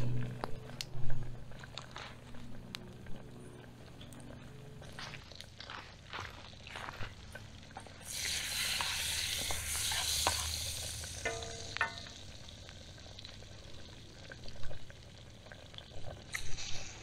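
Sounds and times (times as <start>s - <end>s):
fat sizzling in a frying pan: 6.5s - 17.0s
wooden spatula in a pan: 8.1s - 12.2s.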